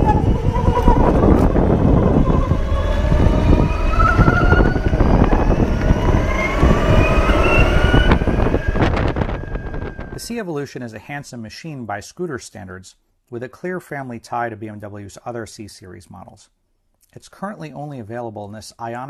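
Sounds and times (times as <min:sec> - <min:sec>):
electric drive whine rising: 0:00.0 - 0:10.3
wind and road noise: 0:00.0 - 0:10.3.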